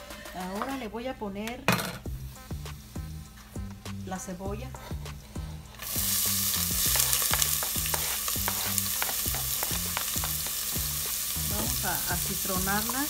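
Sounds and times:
onion sizzling in hot lard: 0:02.1 - 0:13.0
wooden spatula scraping cutting board: 0:06.8 - 0:10.4.

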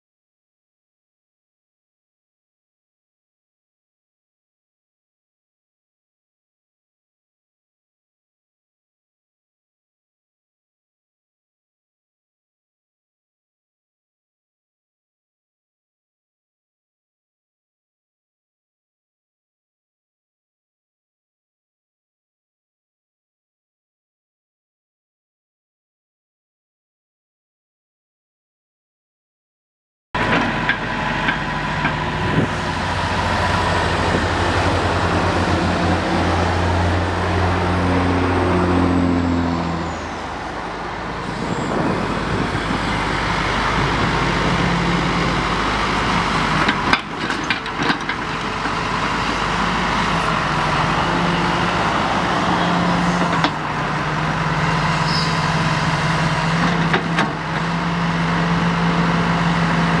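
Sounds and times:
excavator diesel engine running: 0:30.2 - 1:00.0.

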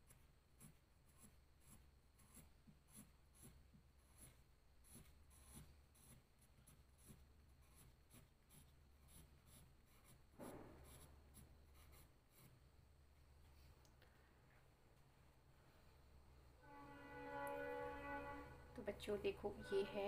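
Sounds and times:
rub on paper: 0:00.0 - 0:12.6
pencil scratching on paper: 0:00.0 - 0:12.8.

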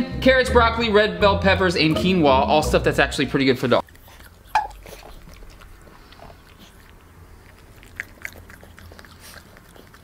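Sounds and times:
dog chewing food: 0:03.8 - 0:10.0.

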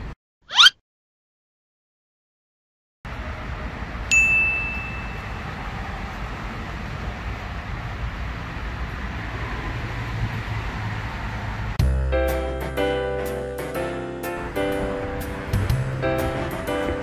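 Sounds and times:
bright chime ding: 0:04.1 - 0:05.4.

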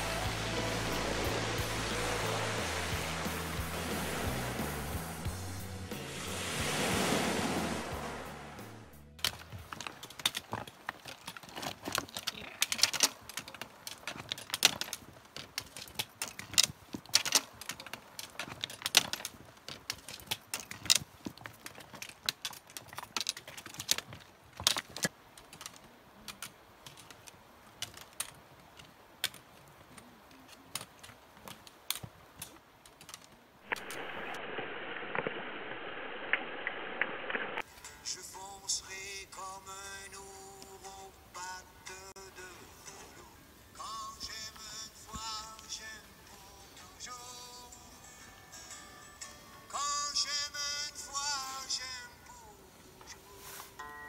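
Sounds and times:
rushing water: 0:00.0 - 0:37.7
poles and boots clicking on rocks: 0:09.2 - 0:34.1, 0:44.3 - 0:46.0.

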